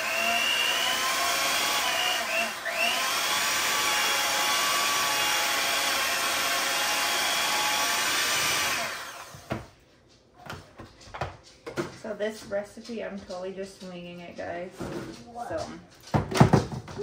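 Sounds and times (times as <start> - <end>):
electric hand mixer running: 0.0 - 9.6.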